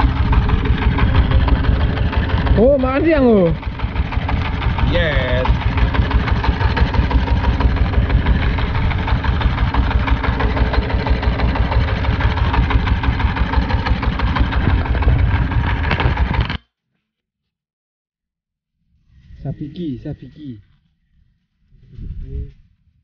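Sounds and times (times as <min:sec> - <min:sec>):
boat engine running at low revs: 0:00.0 - 0:16.6.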